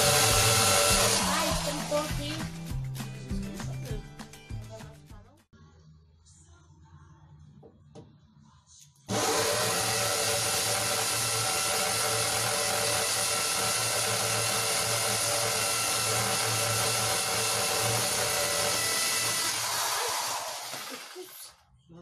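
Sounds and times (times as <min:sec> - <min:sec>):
electric drill boring into wall: 0:00.0 - 0:02.2, 0:09.1 - 0:21.6.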